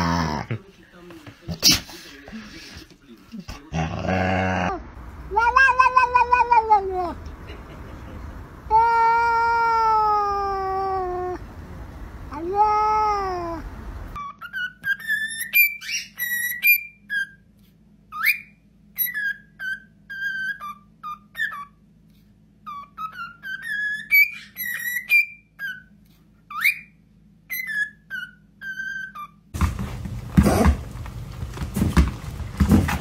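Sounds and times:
cockatiel whistling a tune: 0:14.2 - 0:17.4, 0:18.1 - 0:21.8, 0:22.7 - 0:25.9, 0:26.5 - 0:29.4.

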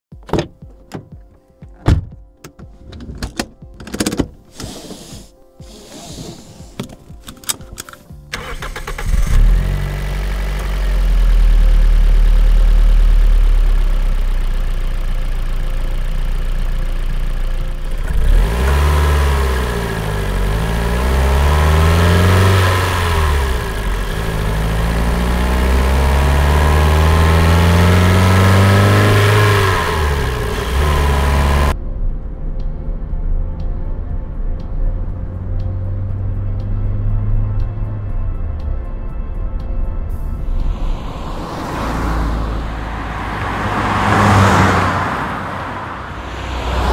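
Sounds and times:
car engine idling and revving: 0:02.2 - 0:46.9
ignition clicks: 0:02.4 - 0:09.6.

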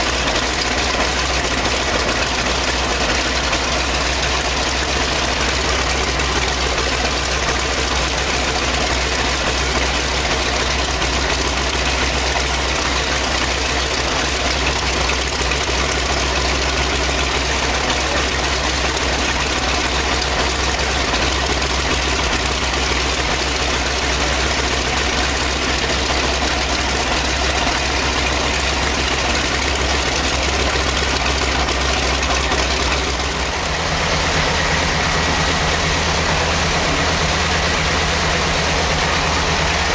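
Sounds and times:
radial piston engine idling: 0:00.0 - 0:39.9.

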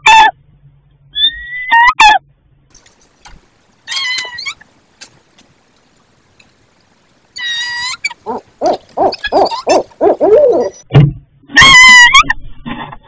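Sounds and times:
owls calling: 0:03.7 - 0:04.8, 0:07.2 - 0:10.8.

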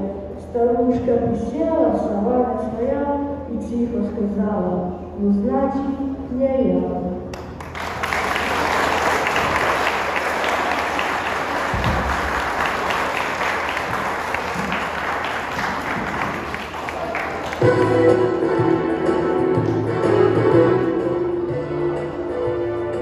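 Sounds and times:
crowd applauding: 0:07.6 - 0:18.2.

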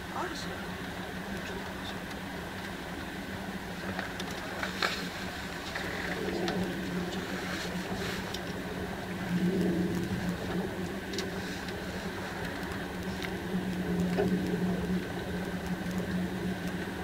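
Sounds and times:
faint ticks: 0:03.9 - 0:08.8, 0:09.4 - 0:17.0.

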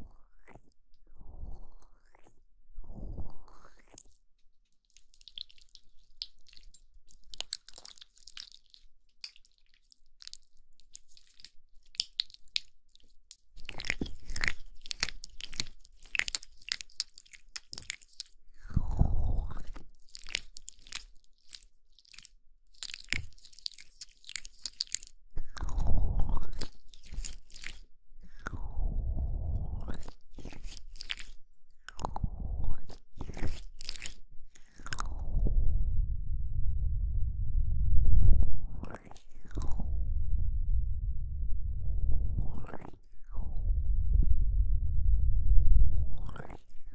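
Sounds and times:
deep muffled rumbles: 0:35.0 - 0:38.8, 0:39.4 - 0:46.3
crackly rubbing on microphone: 0:42.2 - 0:44.5.

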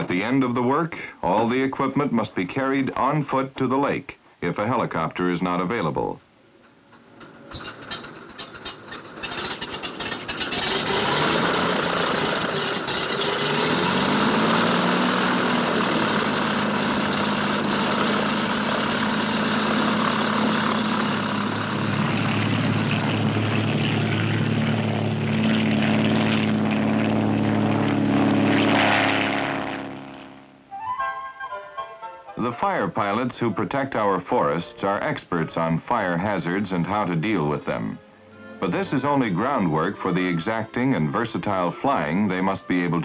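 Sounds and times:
piston engine sputtering and running: 0:06.9 - 0:30.3.

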